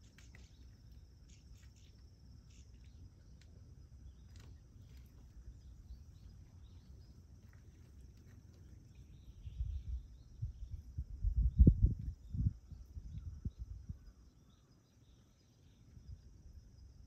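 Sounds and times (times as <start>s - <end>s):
faint high ticks: 0.0s - 3.6s.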